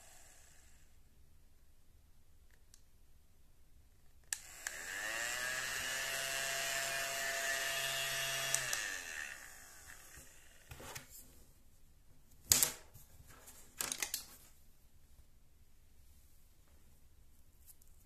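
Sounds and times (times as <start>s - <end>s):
small vacuum motor whirring: 0.0s - 0.9s, 4.4s - 10.8s.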